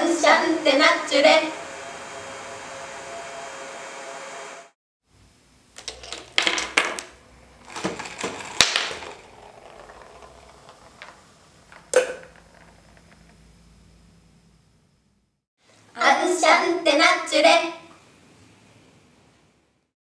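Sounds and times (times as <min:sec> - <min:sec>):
hair dryer blowing: 0:00.0 - 0:04.8
clicks and clatters of small parts: 0:05.8 - 0:07.1
ball knocking into plastic tube: 0:07.7 - 0:13.4.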